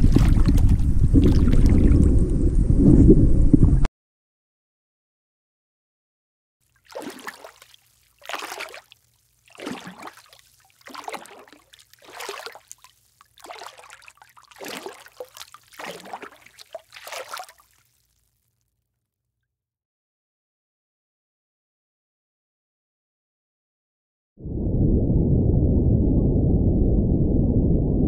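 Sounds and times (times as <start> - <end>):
water sloshing and gurgling: 0.0 - 3.9, 6.6 - 18.3.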